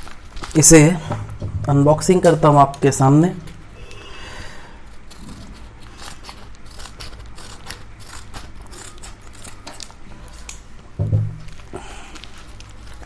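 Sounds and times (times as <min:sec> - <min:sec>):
wrapping crinkling: 0:00.0 - 0:01.0, 0:11.4 - 0:13.0
low steady hum: 0:00.0 - 0:13.0
scissors cutting thick paper: 0:05.0 - 0:10.6.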